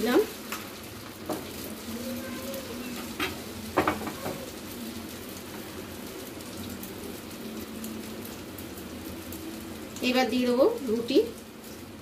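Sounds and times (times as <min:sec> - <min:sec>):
egg sizzling in a pan: 0:00.0 - 0:12.0.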